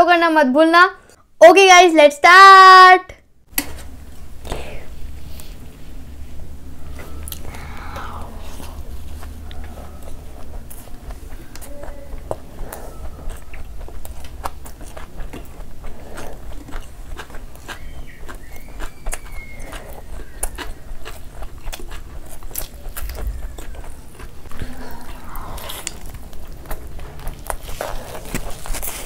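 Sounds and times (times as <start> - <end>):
chewing: 6.8 - 29.0
wet mouth clicks: 21.4 - 28.7.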